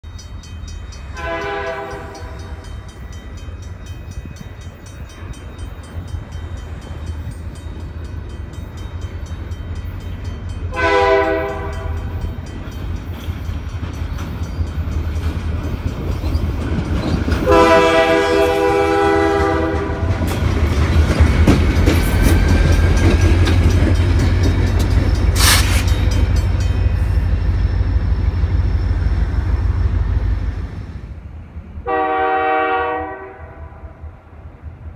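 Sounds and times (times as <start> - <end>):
locomotive air horn blasts: 1.2 - 2.6, 10.7 - 12.1, 17.4 - 20.2, 31.8 - 34.0
sharp screech: 25.4 - 26.0.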